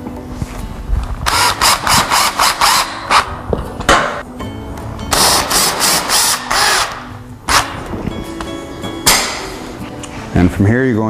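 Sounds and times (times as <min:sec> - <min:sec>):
background music: 0:00.0 - 0:11.0
cordless drill driving screws into metal: 0:01.2 - 0:03.3, 0:05.1 - 0:07.8.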